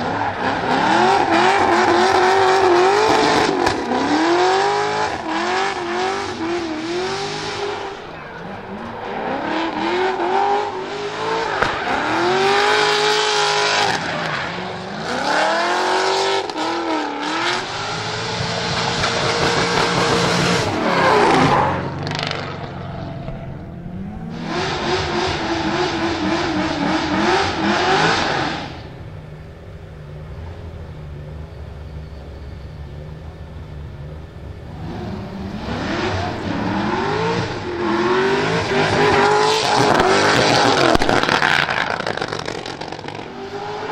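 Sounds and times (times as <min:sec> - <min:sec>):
car engine revving hard: 0:00.0 - 0:22.8, 0:24.0 - 0:28.9, 0:34.7 - 0:43.9.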